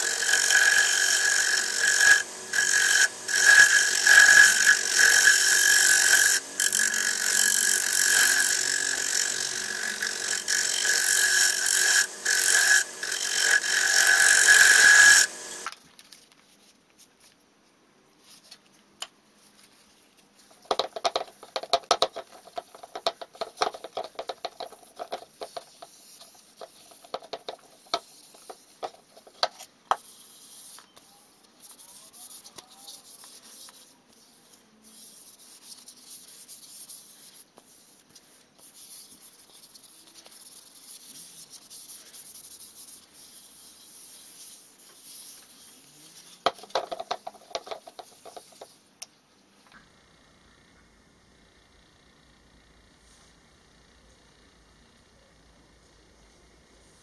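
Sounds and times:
wood lathe tool scraping: 0:00.0 - 0:15.7, 0:46.2 - 0:48.6
pad rubbing wood: 0:46.3 - 0:48.7.

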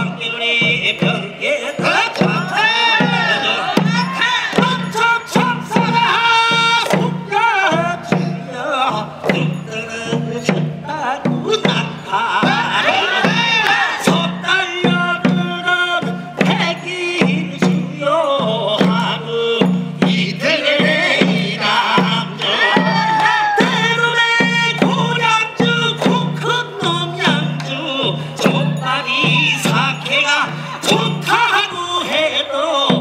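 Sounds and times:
drums beating: 0:00.0 - 0:33.0
sharp percussion strokes: 0:00.0 - 0:33.0.

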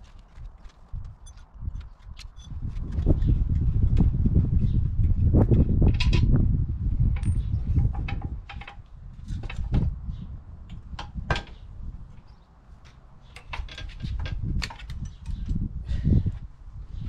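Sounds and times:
tools clicking and knocking on metal: 0:07.2 - 0:09.8, 0:12.8 - 0:15.6.

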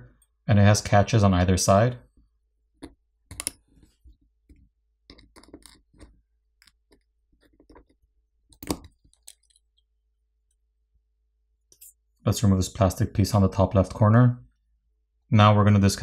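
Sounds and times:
small metal clicks and scrapes: 0:05.1 - 0:08.0, 0:08.6 - 0:09.9.

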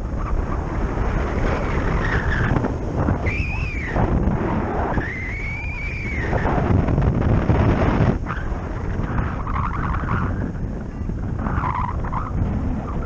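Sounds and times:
wind buffeting microphone: 0:00.0 - 0:13.0
high whistling tone: 0:03.2 - 0:04.0, 0:04.9 - 0:06.4.

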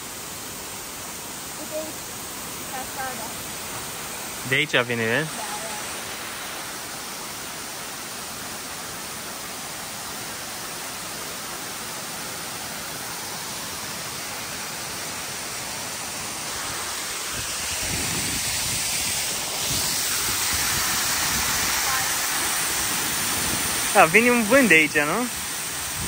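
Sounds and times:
waterfall rushing: 0:00.0 - 0:26.0
wind buffeting microphone: 0:17.4 - 0:23.8.

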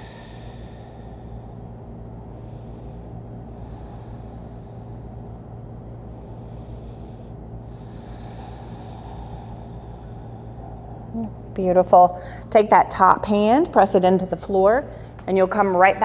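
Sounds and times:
person breathing slowly: 0:00.0 - 0:11.5
steady low hum: 0:00.0 - 0:16.0.

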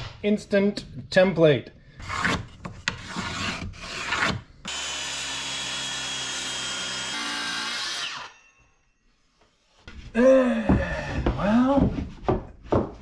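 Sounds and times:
circular saw cutting wood: 0:03.3 - 0:08.6.

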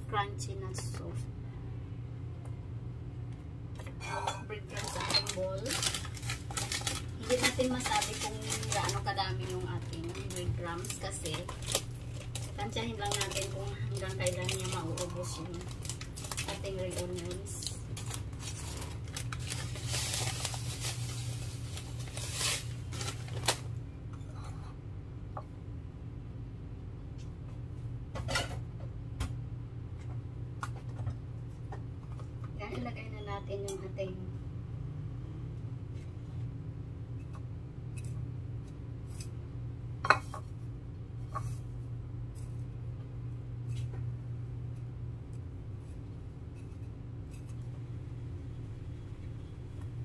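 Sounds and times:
steady low hum: 0:00.0 - 0:50.0
plastic bag rustling: 0:04.6 - 0:23.7.

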